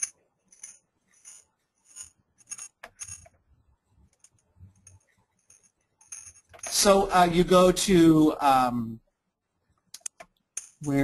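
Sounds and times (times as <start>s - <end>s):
keyboard and mouse clicking: 9.9s - 10.4s.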